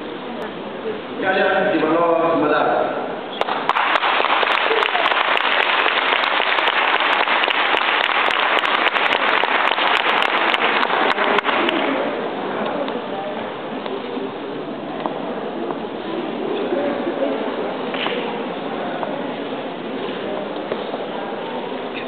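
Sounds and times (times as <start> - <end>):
audience applauding: 3.4 - 12.2.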